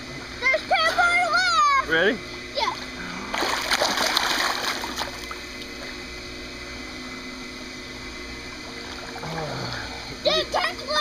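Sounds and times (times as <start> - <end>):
water sloshing and lapping: 2.7 - 6.0
loud splash into pool: 3.3 - 5.2.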